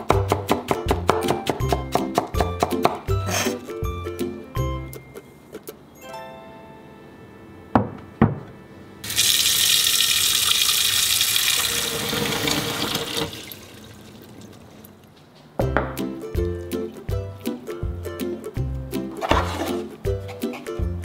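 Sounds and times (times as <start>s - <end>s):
tap water pouring into a tub: 9.0s - 14.6s.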